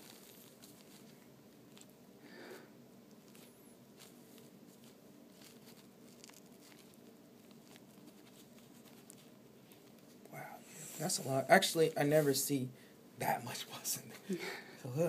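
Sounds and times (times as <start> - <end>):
faint room hum: 0.0 - 15.0.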